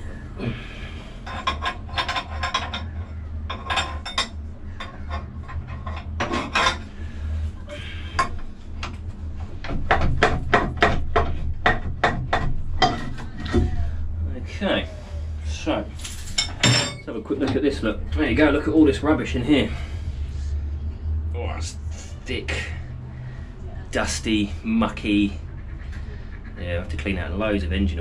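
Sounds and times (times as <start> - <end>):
steady low hum: 0.0 - 28.0
metal parts clinking and scraping: 1.2 - 6.9, 16.0 - 17.1.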